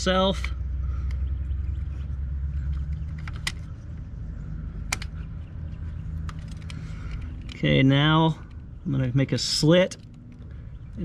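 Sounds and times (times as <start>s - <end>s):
low steady rumble: 0.0s - 11.0s
sharp clicks: 2.6s - 4.1s, 4.8s - 5.4s, 6.1s - 7.7s.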